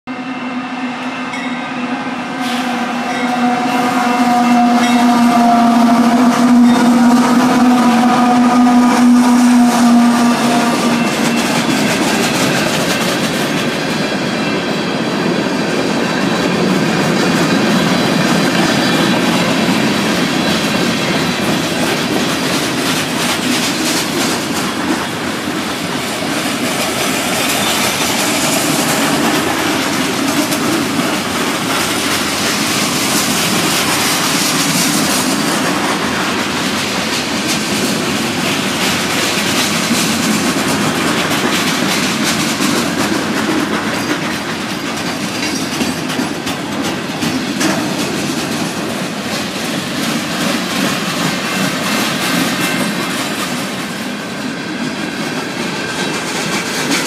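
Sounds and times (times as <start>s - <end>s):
train horn: 0.1s - 12.0s
freight cars rumbling past: 0.3s - 13.8s
wheels clattering over rail joints: 4.0s - 57.0s.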